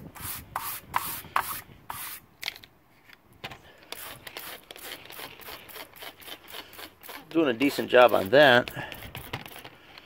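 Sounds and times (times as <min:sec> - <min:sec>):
spray bottle squirts: 0:03.9 - 0:08.3, 0:08.9 - 0:09.7
wire brush scrubbing metal: 0:04.0 - 0:09.7.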